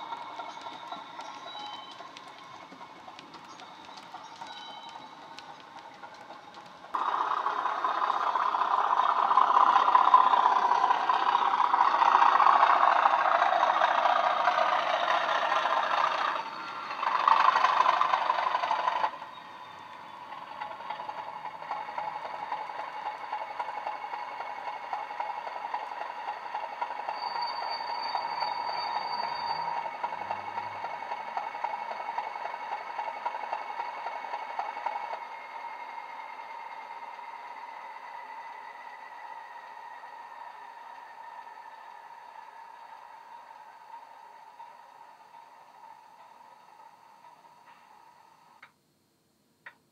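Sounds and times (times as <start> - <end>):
steady whistling tone: 0.0 - 6.6, 7.7 - 48.6
light crackling: 0.0 - 7.0
diesel engine through small speaker: 0.0 - 48.4.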